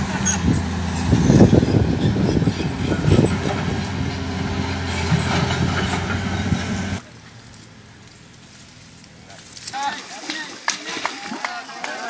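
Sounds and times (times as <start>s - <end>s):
excavator diesel engine running: 0.0s - 9.0s.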